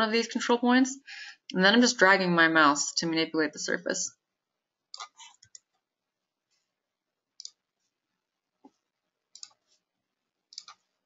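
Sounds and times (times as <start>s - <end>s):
computer mouse clicks: 4.9s - 5.8s, 7.4s - 7.6s, 8.6s - 9.8s, 10.5s - 10.9s.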